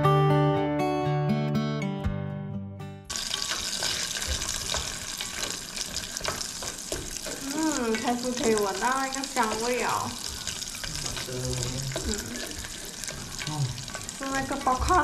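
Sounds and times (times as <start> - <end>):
acoustic guitar music: 0.0 - 3.2
corn kernels sizzling in butter: 3.1 - 15.0.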